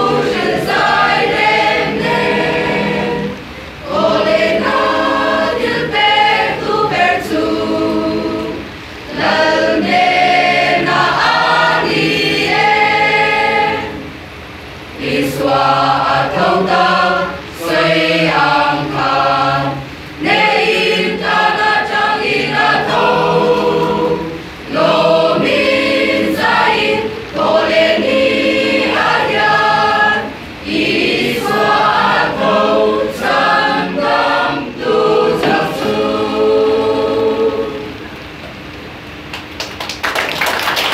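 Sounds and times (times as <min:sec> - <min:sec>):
mixed choir singing a hymn: 0:00.0 - 0:38.2.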